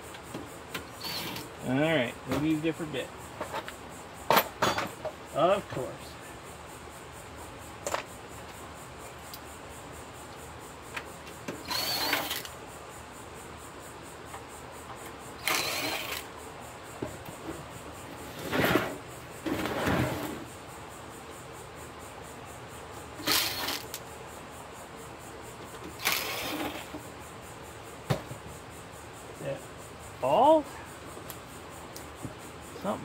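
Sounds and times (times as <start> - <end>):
cordless drill bursts: 1.0 - 1.4, 11.6 - 12.5, 15.4 - 16.3, 23.2 - 24.0, 26.0 - 26.9.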